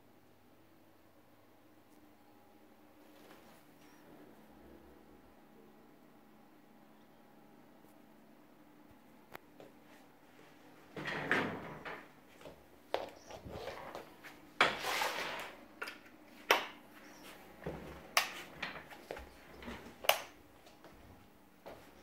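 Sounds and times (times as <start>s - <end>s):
footsteps in sandals on hard floor: 12.3s - 22.0s.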